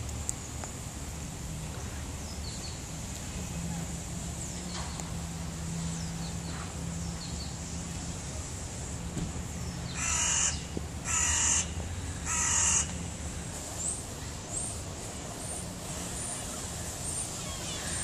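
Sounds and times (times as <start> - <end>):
crow cawing: 9.9 - 13.0.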